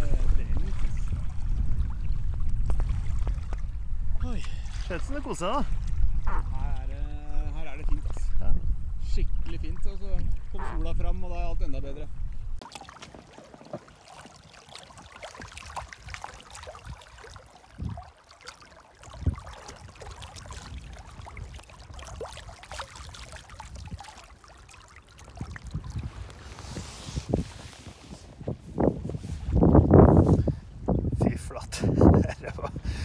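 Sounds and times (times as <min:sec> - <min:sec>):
stream water gurgling and splashing: 0:00.0 - 0:08.4, 0:12.6 - 0:28.2.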